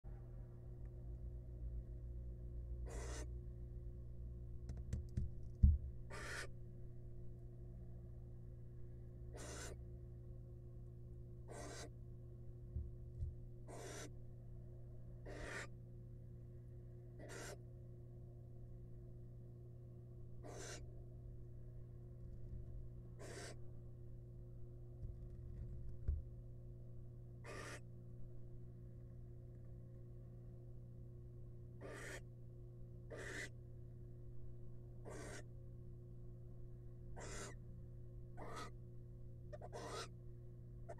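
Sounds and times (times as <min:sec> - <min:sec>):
steady low hum: 0:00.1 - 0:40.9
owl hissing: 0:02.8 - 0:03.3, 0:06.1 - 0:06.5, 0:09.3 - 0:09.8, 0:11.5 - 0:11.9, 0:13.7 - 0:14.1, 0:15.2 - 0:15.7, 0:17.2 - 0:17.6, 0:20.4 - 0:20.8, 0:23.2 - 0:23.6, 0:27.4 - 0:27.8, 0:31.8 - 0:32.2, 0:33.1 - 0:33.5, 0:35.0 - 0:35.5, 0:37.2 - 0:37.6, 0:38.4 - 0:38.8, 0:39.5 - 0:40.1
soft low thumps: 0:04.7 - 0:06.0, 0:12.7 - 0:13.4.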